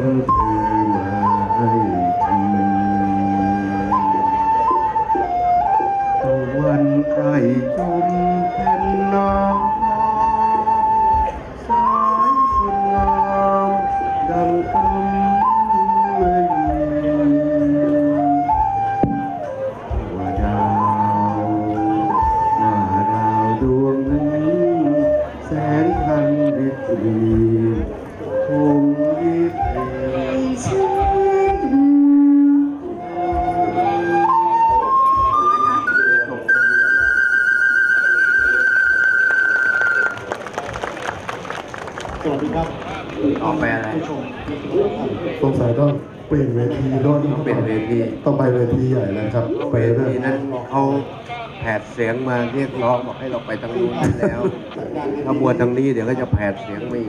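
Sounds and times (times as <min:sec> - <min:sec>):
flute melody over pa: 0:00.0 - 0:44.5, 0:45.5 - 0:51.0.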